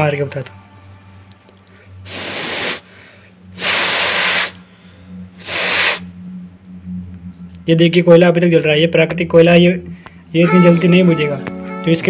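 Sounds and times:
person blowing breath puffs: 1.7s - 6.2s.

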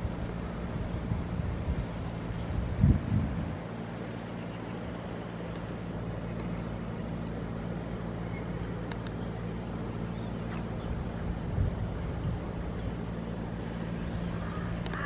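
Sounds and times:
low mechanical hum: 0.0s - 15.0s
outdoor noise: 0.0s - 15.0s.

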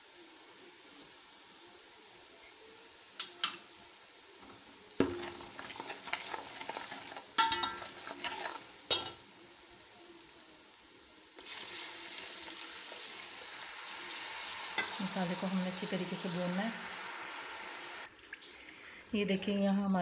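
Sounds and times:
oil sizzling: 0.0s - 19.6s
spoon scraping pot: 5.0s - 9.2s
spoon clinking on metal pot: 7.4s - 9.2s.

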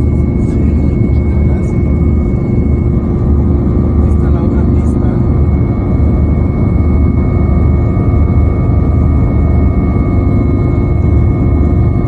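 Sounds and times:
helicopter engine and rotor noise: 0.0s - 12.0s.

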